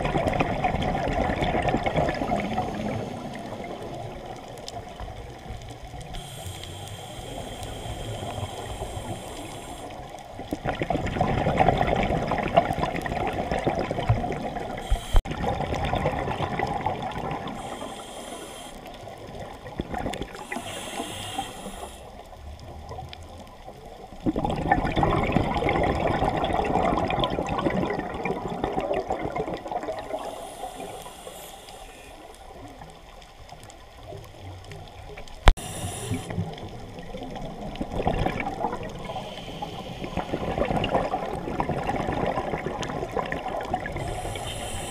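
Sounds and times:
exhaled bubbles underwater: 0:00.0 - 0:44.9
regulator inhalation hiss: 0:06.1 - 0:10.2, 0:14.8 - 0:15.2, 0:17.5 - 0:19.2, 0:20.4 - 0:22.2, 0:30.1 - 0:32.4, 0:35.6 - 0:36.6, 0:39.0 - 0:40.5, 0:44.0 - 0:44.9.

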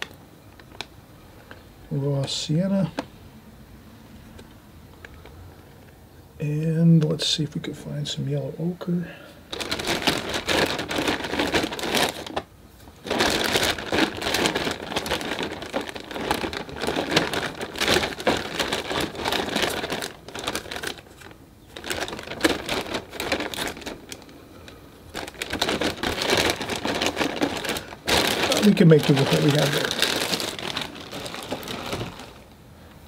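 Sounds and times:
plastic bag crinkling: 0:09.5 - 0:32.6.

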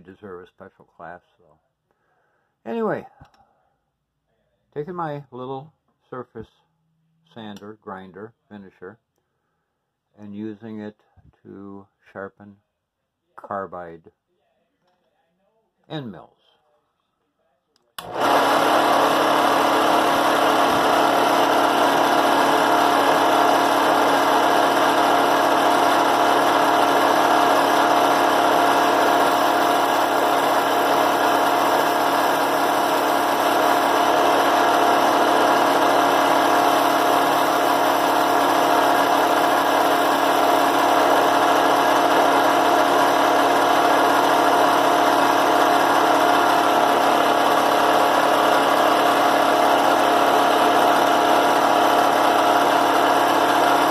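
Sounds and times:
drill press motor hum: 0:18.0 - 0:53.9.

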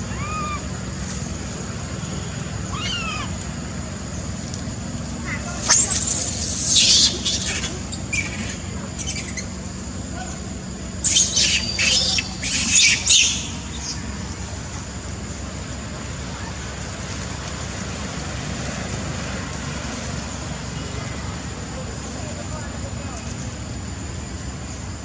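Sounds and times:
monkey screeching: 0:00.0 - 0:00.7, 0:02.7 - 0:03.4, 0:05.4 - 0:09.5, 0:11.0 - 0:14.0
low background hum: 0:00.0 - 0:25.0.

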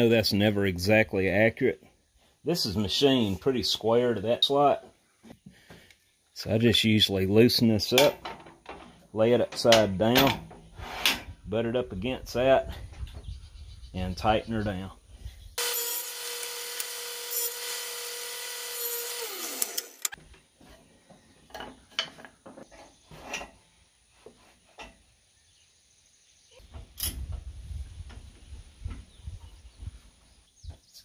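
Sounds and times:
table saw running: 0:15.6 - 0:20.2.

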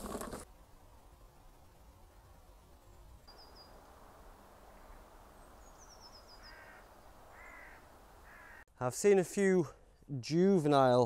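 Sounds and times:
outdoor woodland ambience: 0:00.0 - 0:11.0
small bird chirping: 0:02.7 - 0:03.8, 0:04.8 - 0:07.7
crow cawing: 0:06.4 - 0:08.7.

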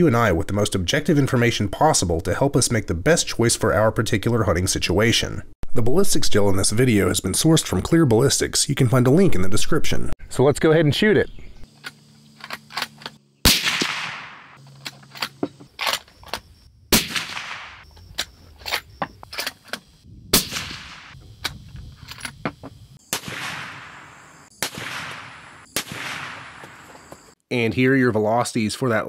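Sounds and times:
gunshot echo: 0:13.4 - 0:14.6, 0:16.9 - 0:17.8, 0:20.3 - 0:21.2, 0:23.1 - 0:26.9
suppressed rifle shots: 0:13.4 - 0:14.6, 0:16.9 - 0:17.8, 0:20.3 - 0:21.2, 0:23.1 - 0:26.8.

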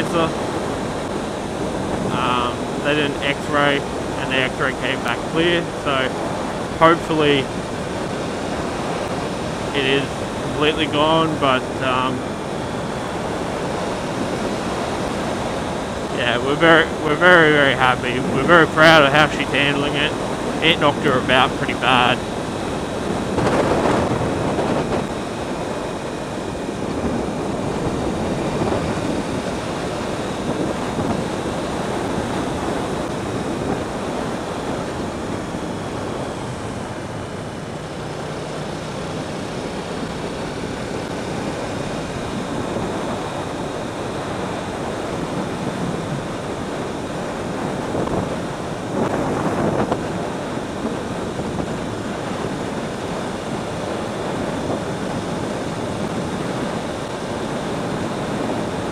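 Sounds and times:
wind rushing over microphone: 0:00.0 - 0:58.9
motorcycle engine running: 0:22.2 - 0:45.6.

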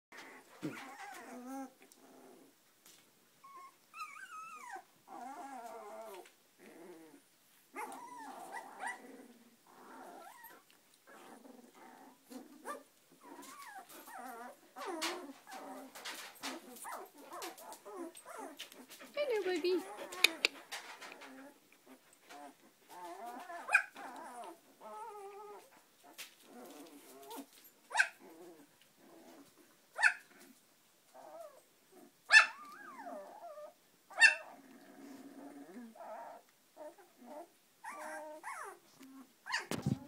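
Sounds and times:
puppies whimpering and squeaking: 0:00.2 - 0:01.7, 0:03.4 - 0:07.2, 0:07.8 - 0:25.7, 0:32.3 - 0:40.0
puppy yelps: 0:23.0 - 0:25.6, 0:27.9 - 0:28.2, 0:30.0 - 0:30.3, 0:32.3 - 0:34.6, 0:39.4 - 0:40.0.

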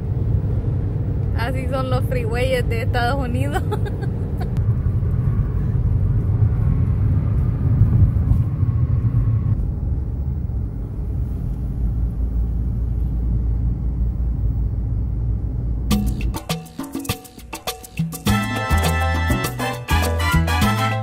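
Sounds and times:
car road noise: 0:00.0 - 0:16.5.

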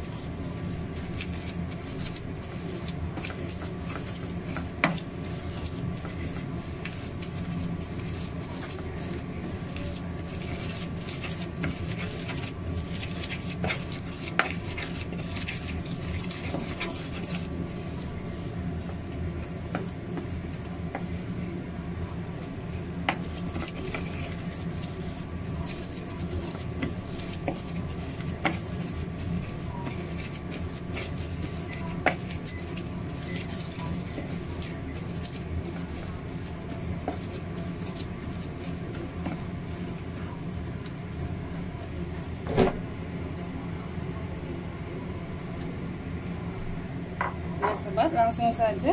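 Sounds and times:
corn kernels mashed by hand: 0:00.0 - 0:18.2, 0:23.0 - 0:40.0
steady low hum: 0:00.0 - 0:48.9.

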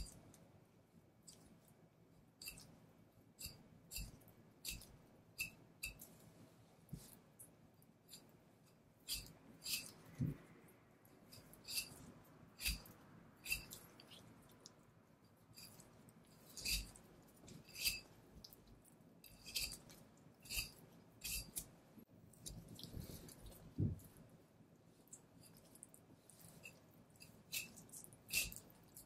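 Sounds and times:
knife slicing meat: 0:09.1 - 0:10.4, 0:12.6 - 0:13.8, 0:16.5 - 0:17.0, 0:17.6 - 0:18.1, 0:19.2 - 0:21.7, 0:27.5 - 0:29.0.

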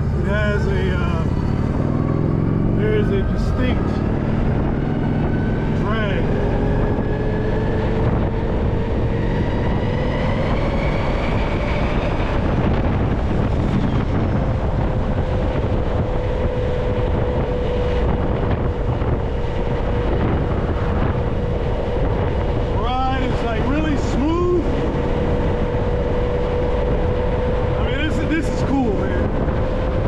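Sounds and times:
wind noise on microphone: 0:00.0 - 0:30.0.

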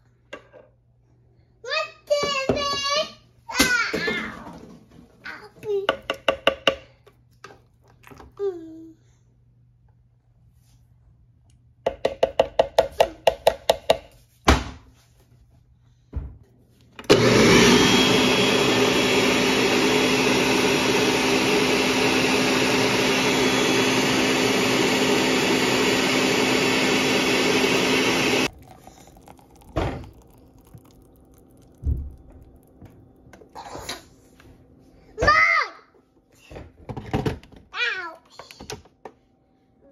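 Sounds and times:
blender blending: 0:17.0 - 0:32.9
blender short pulses: 0:17.1 - 0:29.0.

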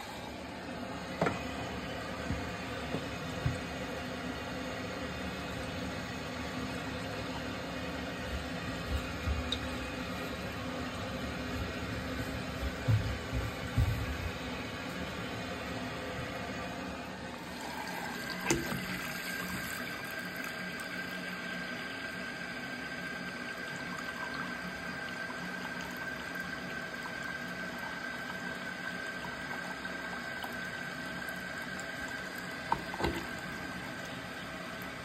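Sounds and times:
faucet running into sink: 0:17.4 - 0:35.0.

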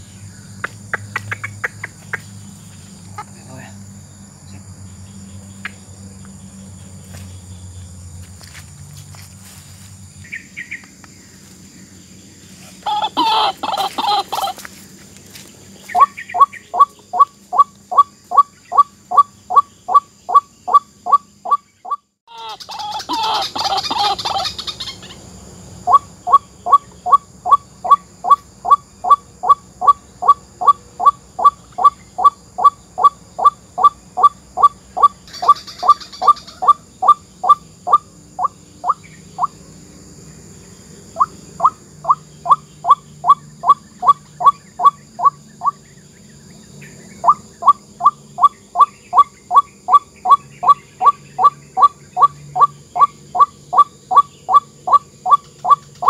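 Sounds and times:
repeated kwak calls: 0:00.0 - 0:03.7, 0:12.6 - 0:14.6, 0:15.9 - 0:25.2, 0:25.8 - 0:39.6, 0:41.1 - 0:46.0, 0:46.8 - 0:56.0
waterhen croaking: 0:12.8 - 0:14.6, 0:16.0 - 0:25.1, 0:25.9 - 0:39.6, 0:41.1 - 0:45.8, 0:47.2 - 0:56.0.

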